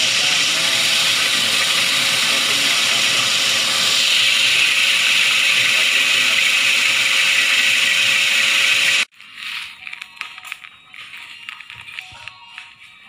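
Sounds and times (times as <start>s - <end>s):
chopping machine running: 0.0s - 9.1s.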